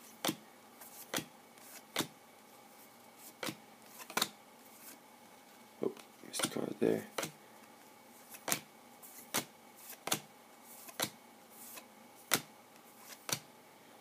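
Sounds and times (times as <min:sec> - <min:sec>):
cards snapping against stack: 0:01.0 - 0:02.1, 0:03.4 - 0:04.3, 0:08.3 - 0:12.5, 0:13.1 - 0:13.4.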